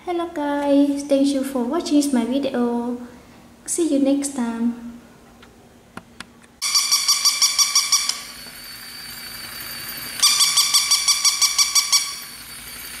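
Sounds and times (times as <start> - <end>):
toy dog beeping yips: 6.6 - 8.5, 10.2 - 13.0
toy motor whirring: 6.6 - 13.0.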